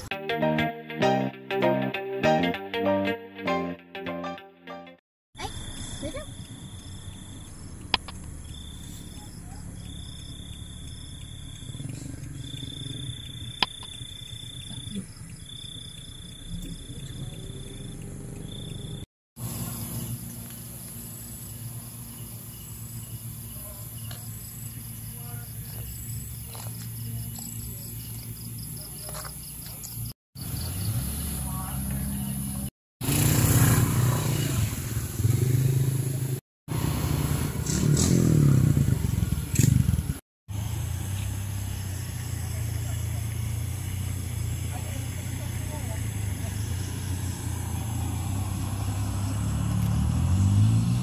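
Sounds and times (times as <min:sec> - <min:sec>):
insects trilling: 0:05.4 - 0:31.3.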